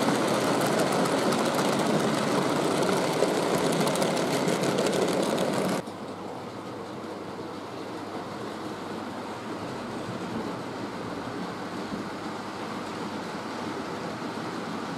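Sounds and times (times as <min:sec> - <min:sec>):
model train wheels rattling: 0:00.0 - 0:05.9.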